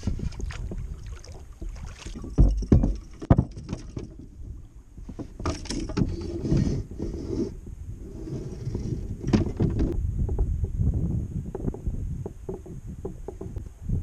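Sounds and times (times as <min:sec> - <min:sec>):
paddle and fishing gear clattering: 0:00.0 - 0:06.8, 0:08.5 - 0:10.5.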